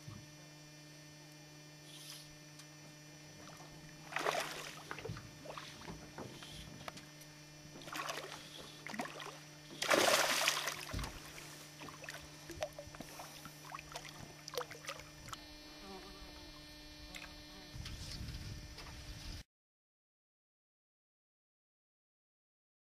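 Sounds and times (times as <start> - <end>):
low electrical hum: 0.0 - 19.4
fish thrashing and splashing: 3.5 - 6.0, 7.8 - 15.4.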